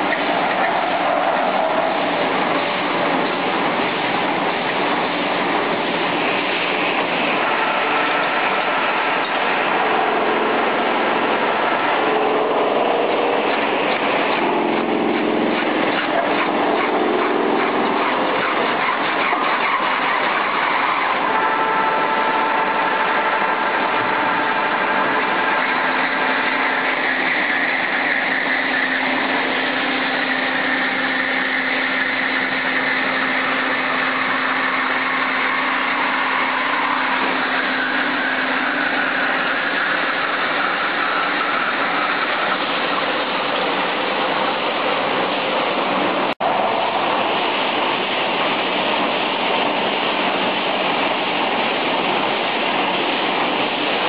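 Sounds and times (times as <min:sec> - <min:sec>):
veneer lathe cutting log: 0:06.2 - 0:47.2.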